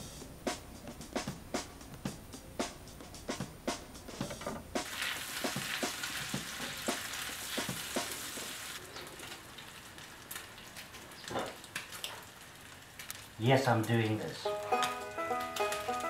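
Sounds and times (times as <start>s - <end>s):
rhythmic music: 0.0s - 8.5s, 14.4s - 16.0s
bacon sizzling: 4.8s - 16.0s.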